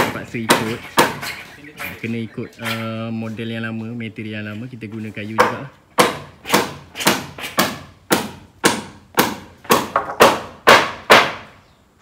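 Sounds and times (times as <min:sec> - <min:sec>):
hammer driving nails into timber: 0:05.4 - 0:11.5.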